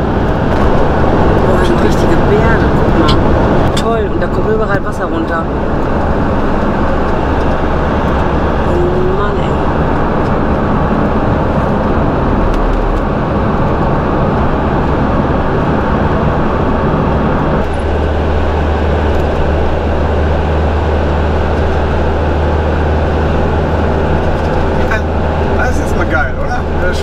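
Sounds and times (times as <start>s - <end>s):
van engine and road drone: 0.0s - 27.0s.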